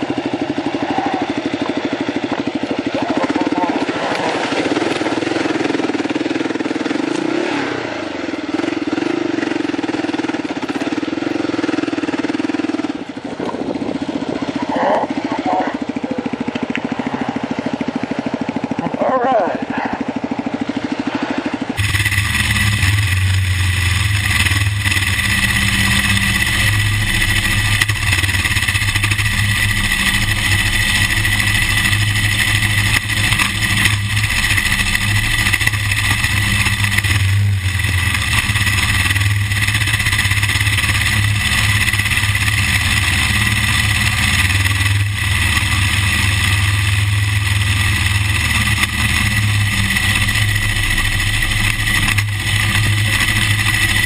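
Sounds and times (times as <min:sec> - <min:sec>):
motorcycle engine running: 0:00.0 - 0:54.0
road noise: 0:00.0 - 0:54.0
wind noise: 0:13.2 - 0:14.8.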